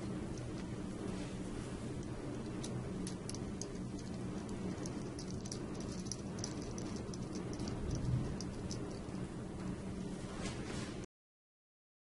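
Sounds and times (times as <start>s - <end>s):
steady low hum: 0.0s - 11.1s
light clicks of small metal parts: 2.0s - 9.1s.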